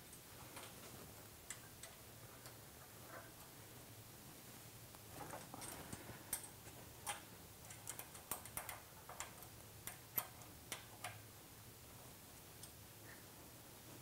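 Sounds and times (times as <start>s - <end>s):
allen key clicking on metal: 5.6s - 11.2s.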